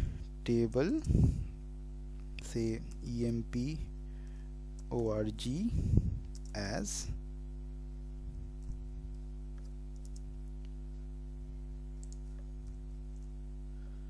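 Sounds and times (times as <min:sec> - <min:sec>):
low electrical hum: 0:00.0 - 0:14.0
keyboard and mouse clicks: 0:06.3 - 0:06.6, 0:09.5 - 0:10.3, 0:12.0 - 0:13.3.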